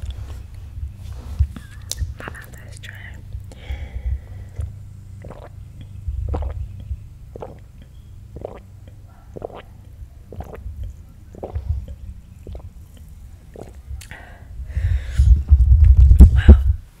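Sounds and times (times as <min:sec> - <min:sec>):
person gulping a drink: 0:01.4 - 0:14.2.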